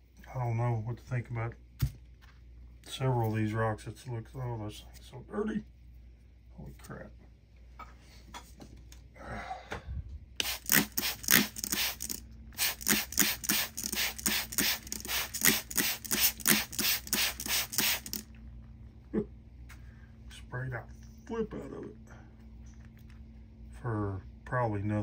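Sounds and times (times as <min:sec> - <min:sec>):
spray bottle squirting water: 0:10.4 - 0:18.3.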